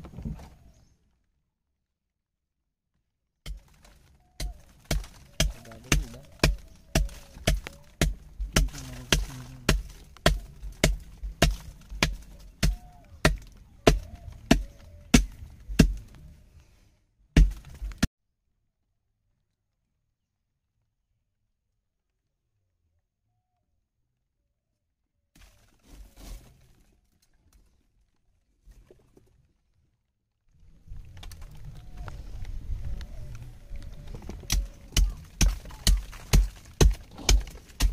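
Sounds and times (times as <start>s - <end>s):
metal spike chipping ice: 34.9s - 37.9s.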